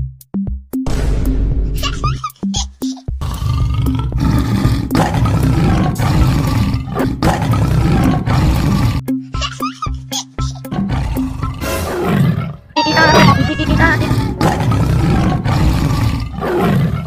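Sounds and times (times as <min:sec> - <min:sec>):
tiger roaring: 0:03.2 - 0:09.0, 0:10.7 - 0:17.0.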